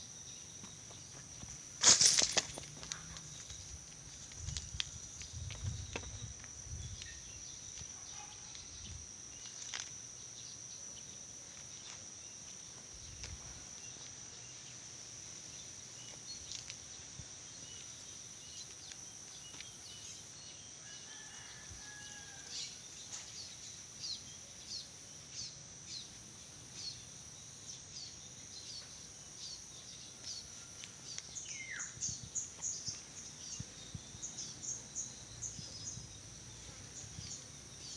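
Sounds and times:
high-pitched insect drone: 0.0 - 37.9.

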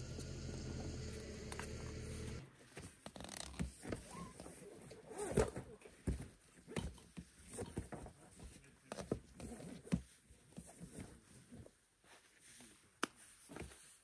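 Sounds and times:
low machine hum: 0.0 - 2.4
fabric rustling and scraping: 2.2 - 14.0.

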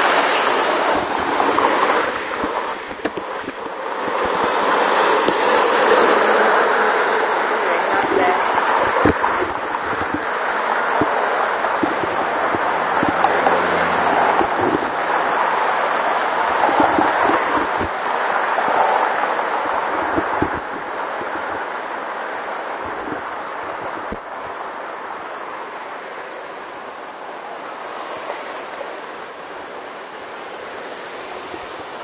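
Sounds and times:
wind buffeting microphone: 0.0 - 24.9
city traffic passing: 0.0 - 32.0.

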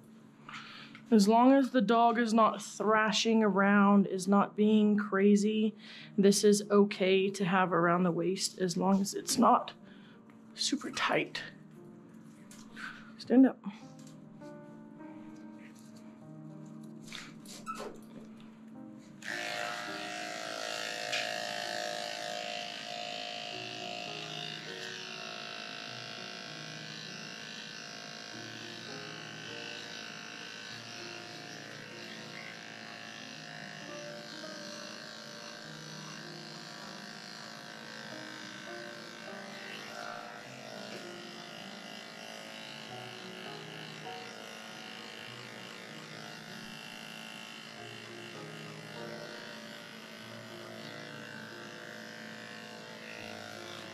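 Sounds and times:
electric clippers humming: 16.6 - 53.9.

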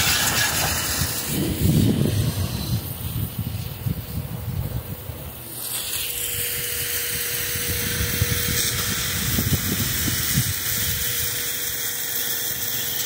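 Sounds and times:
constant whining tone: 0.0 - 13.0
helicopter rushing hiss: 0.0 - 13.0.

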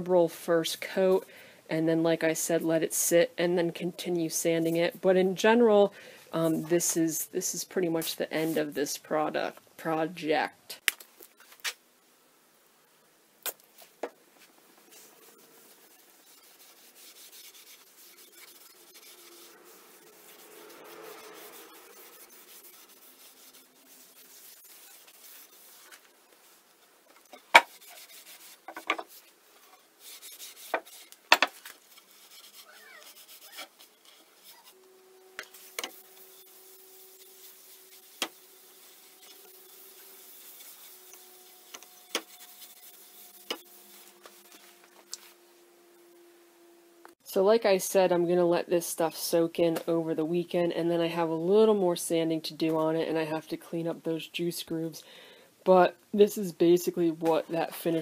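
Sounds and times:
cloth rag rubbing wood: 13.8 - 26.6, 27.2 - 34.8, 35.4 - 45.4.

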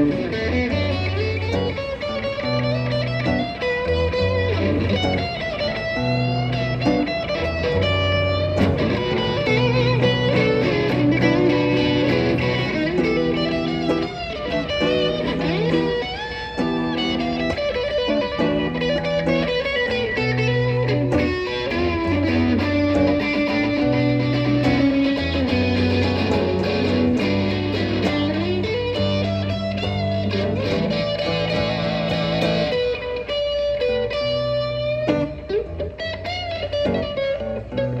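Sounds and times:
low bass line: 0.0 - 32.9
electric guitar solo: 0.0 - 38.0.

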